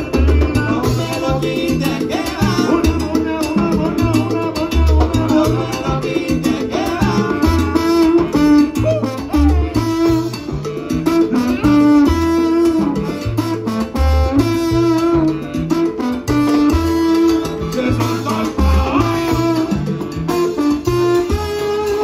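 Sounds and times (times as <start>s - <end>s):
repeating bass pattern: 0.0s - 21.6s
congas: 0.0s - 22.0s
salsa band playing: 0.0s - 22.0s
trombones: 6.8s - 22.0s.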